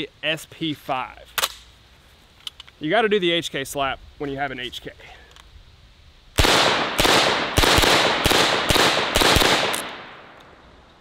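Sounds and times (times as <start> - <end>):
gunshots with ringing echo: 6.4 - 10.3.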